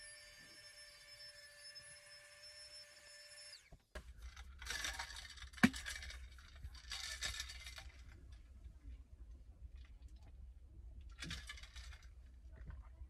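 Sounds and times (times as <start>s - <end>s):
electric air pump whine: 0.0s - 3.8s
rustling scraping handling noise: 4.0s - 8.6s.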